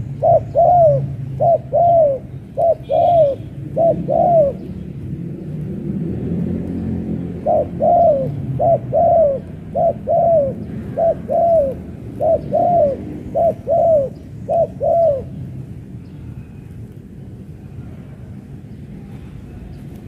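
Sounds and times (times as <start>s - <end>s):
dove cooing: 0.0s - 4.8s, 7.2s - 15.5s.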